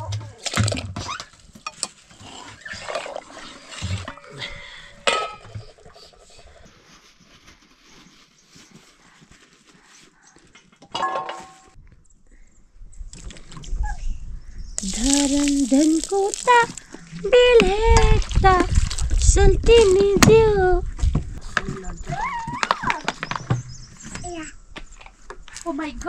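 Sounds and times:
pots and utensils clinking: 5.0s - 5.7s, 10.9s - 11.8s.

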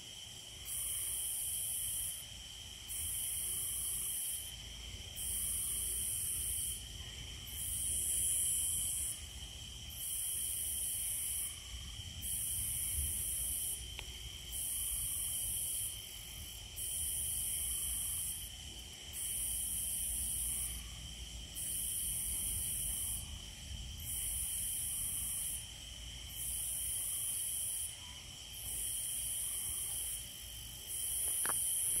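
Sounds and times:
crickets trilling: 0.0s - 32.0s
rasping insect chorus: 0.0s - 32.0s.

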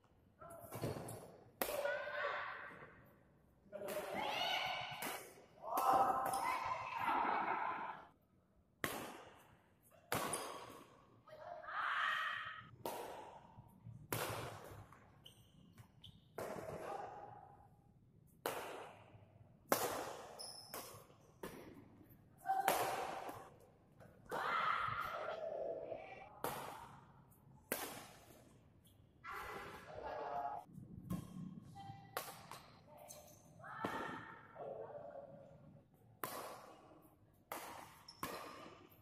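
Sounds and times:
racket striking shuttlecock: 26.4s - 27.1s, 36.2s - 39.0s.

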